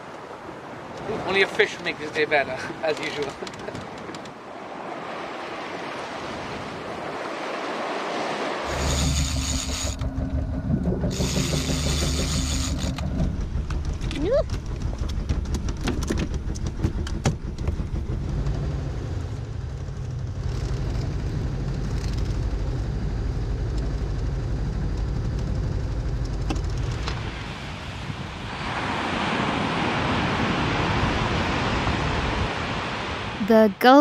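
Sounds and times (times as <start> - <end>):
low buffeting rumble: 8.7 - 27.5
small surf breaking on sand: 27.0 - 33.4.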